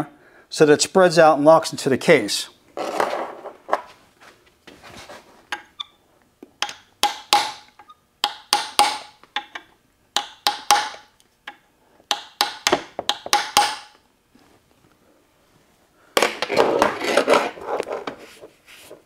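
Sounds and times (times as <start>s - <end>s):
hammer striking steel punch: 6.6s - 9.5s, 10.2s - 11.1s, 12.1s - 13.9s.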